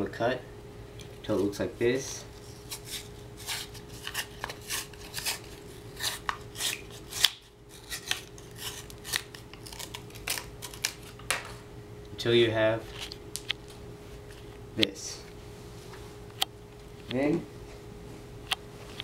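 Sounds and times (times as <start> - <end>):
cardboard tearing: 2.6 - 11.2.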